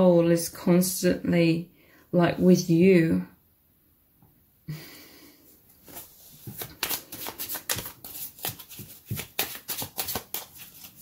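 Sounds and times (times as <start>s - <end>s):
cards being shuffled: 5.8s - 11.0s.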